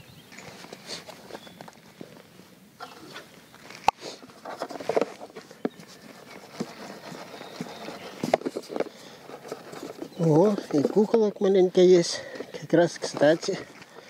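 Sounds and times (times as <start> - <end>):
plastic tub and lid rustling: 2.8 - 14.0.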